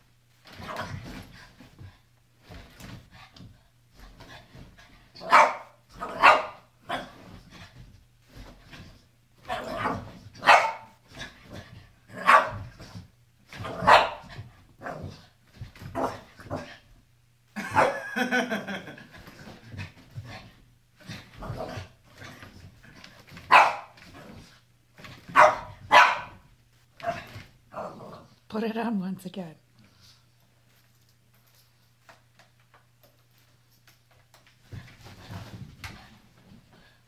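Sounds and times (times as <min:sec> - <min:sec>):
small dog barking: 0:05.2 - 0:07.1, 0:09.5 - 0:10.9, 0:12.2 - 0:12.6, 0:13.7 - 0:14.3, 0:23.5 - 0:24.0, 0:25.4 - 0:26.4.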